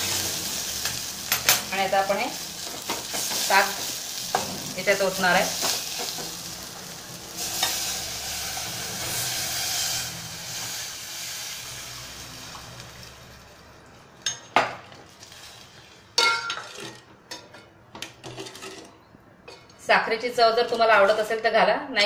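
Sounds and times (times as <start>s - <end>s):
leaves sizzling in a saucepan: 0.0s - 16.8s
spoon clinking against a pot: 16.2s - 18.9s.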